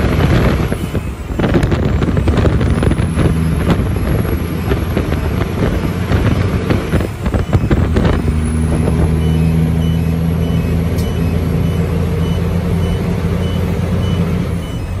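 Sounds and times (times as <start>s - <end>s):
diesel truck engine running: 0.0s - 15.0s
short high beeps: 7.3s - 15.0s.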